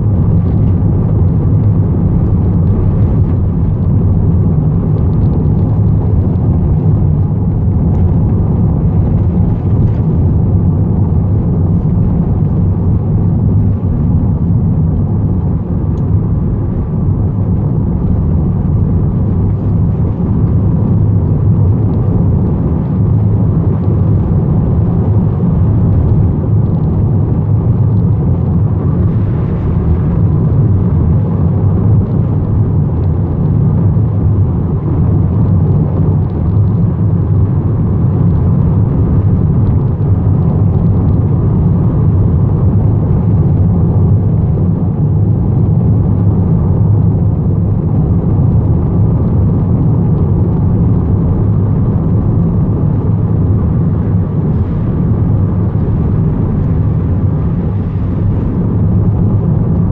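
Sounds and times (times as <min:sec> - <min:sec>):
van cabin road and engine rumble: 0:00.0 - 0:59.9.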